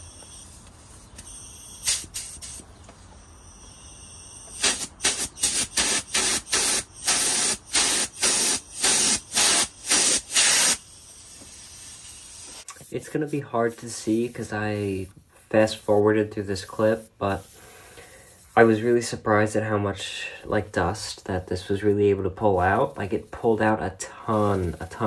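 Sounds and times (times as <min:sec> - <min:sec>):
compressed gas blasts from hose: 0:01.8 - 0:02.6, 0:04.5 - 0:12.7.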